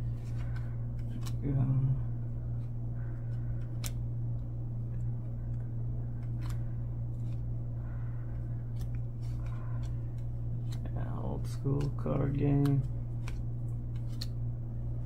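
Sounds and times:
cards rustling: 0.0 - 15.0
low hum: 0.0 - 15.0
cards flicking clicks: 0.2 - 2.0, 3.3 - 4.1, 4.9 - 7.5, 8.4 - 14.5.

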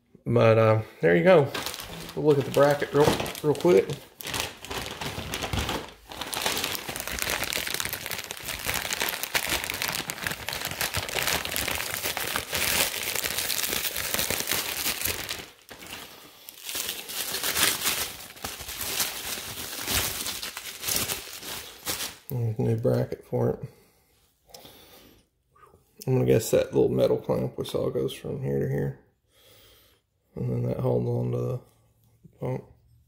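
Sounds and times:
plastic packaging crinkling: 1.1 - 22.4.

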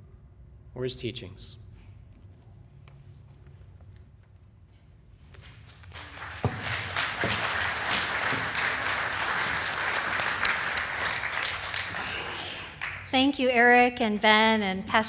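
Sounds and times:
congregation applauding: 5.7 - 13.4.

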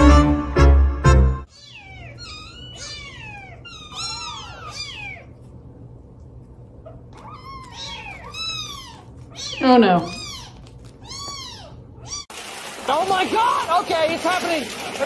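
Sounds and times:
loud music: 0.0 - 1.5
kittens mewing: 1.5 - 5.6, 6.7 - 12.3.

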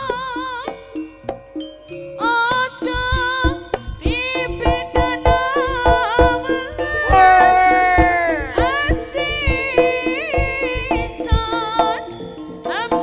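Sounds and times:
hand drums beating: 2.8 - 12.1.

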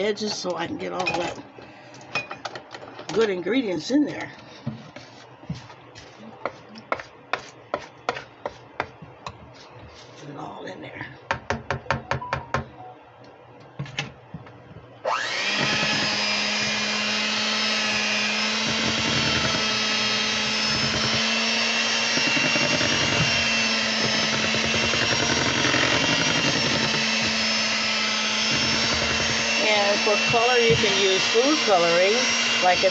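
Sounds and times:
beaters churning batter in bowl: 4.0 - 10.2, 15.2 - 32.9
electric hand mixer whining: 15.0 - 32.9.

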